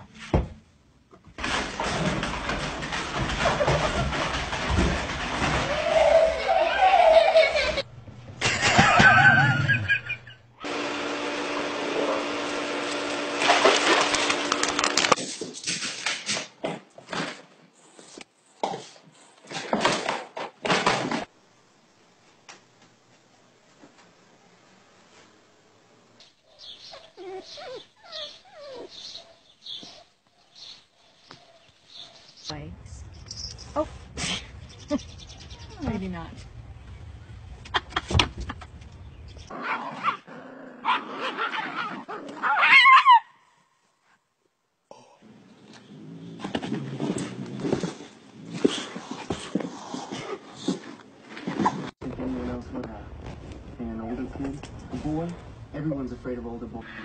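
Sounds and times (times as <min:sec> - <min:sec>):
dog barking and yelping: 0:26.5 - 0:32.3, 0:39.5 - 0:43.4
cat and dog scuffling: 0:46.2 - 0:52.0.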